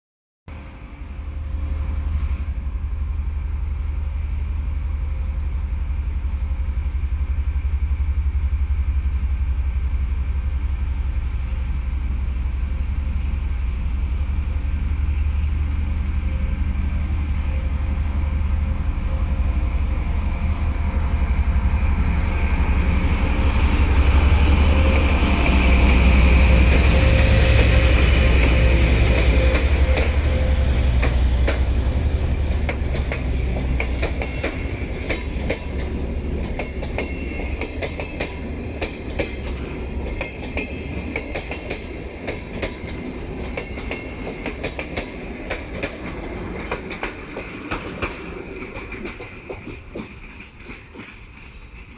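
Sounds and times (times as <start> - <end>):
diesel locomotive engine rumbling: 0.5 - 51.9
train wheel and rail noise: 0.5 - 51.9.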